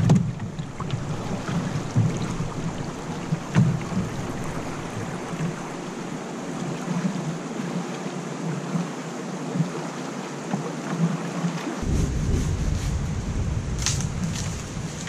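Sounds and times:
stream water rushing over rocks: 0:00.0 - 0:12.0
soft low thumps: 0:11.8 - 0:15.0.

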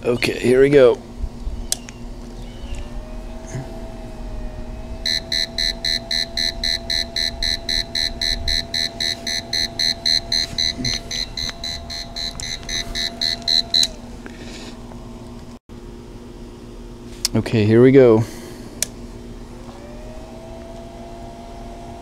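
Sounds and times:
faint steady whine: 0:00.0 - 0:22.0
rapid electronic warning beeps: 0:05.0 - 0:14.0.

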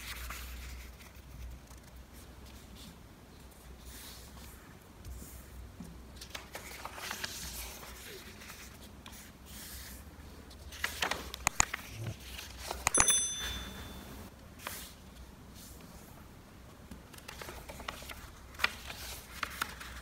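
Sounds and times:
paper rustling and folding: 0:00.0 - 0:05.5, 0:06.1 - 0:12.8, 0:17.1 - 0:20.0
paper crinkles and taps: 0:10.7 - 0:12.0, 0:16.9 - 0:20.0
high bell-like ding: 0:12.9 - 0:14.3.

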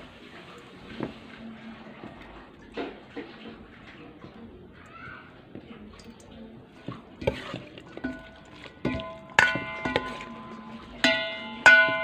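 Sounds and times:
spoon stirring food in bowl: 0:05.4 - 0:12.0
spoon clanking on metal bowl: 0:05.9 - 0:12.0.

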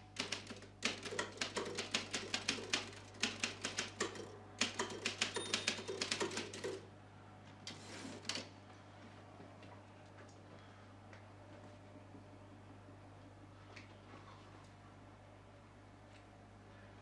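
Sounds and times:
typewriter keys clacking: 0:00.2 - 0:06.8.

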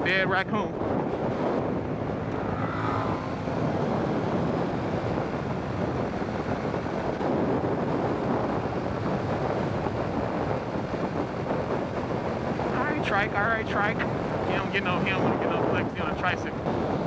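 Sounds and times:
road noise: 0:00.0 - 0:17.0
wind rushing over microphone: 0:00.0 - 0:17.0
motorcycle engine: 0:00.1 - 0:13.1.

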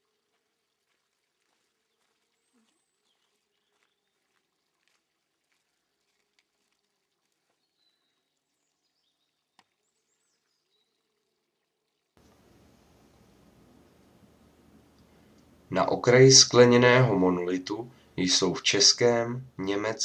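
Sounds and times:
steady hiss: 0:12.2 - 0:17.0.

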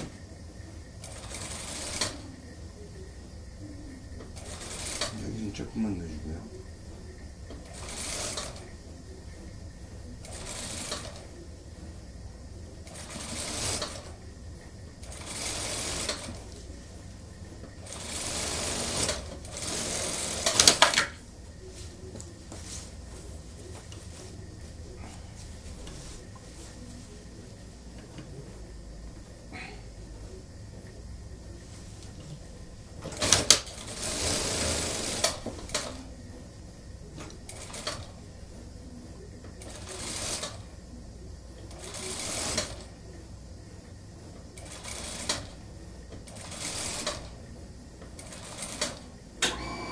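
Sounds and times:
sewing machine stitching: 0:01.0 - 0:02.2, 0:04.4 - 0:05.3, 0:07.6 - 0:08.7, 0:10.2 - 0:11.3, 0:12.9 - 0:14.2, 0:15.0 - 0:16.5, 0:17.8 - 0:21.1, 0:33.0 - 0:36.0, 0:37.5 - 0:38.2, 0:39.6 - 0:40.6, 0:41.7 - 0:42.9, 0:44.6 - 0:45.6, 0:46.2 - 0:47.4, 0:48.2 - 0:49.9
sewing machine clacks: 0:04.3 - 0:05.2, 0:07.5 - 0:08.6, 0:12.9 - 0:14.2, 0:15.0 - 0:16.4, 0:17.8 - 0:21.2, 0:33.0 - 0:35.9, 0:37.5 - 0:38.1, 0:41.7 - 0:42.9, 0:44.6 - 0:45.6, 0:46.2 - 0:47.3, 0:48.1 - 0:49.6
sewing machine clicks: 0:17.8 - 0:21.1.

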